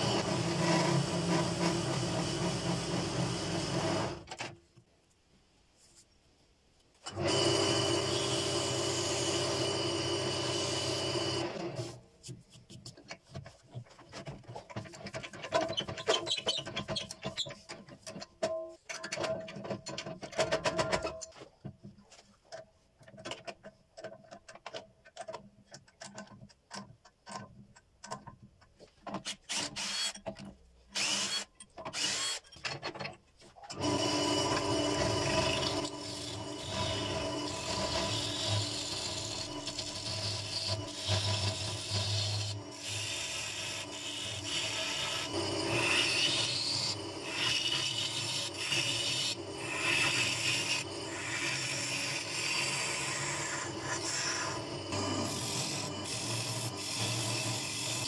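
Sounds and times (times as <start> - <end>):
gouge scraping spinning wood: 33.8 - 58.0.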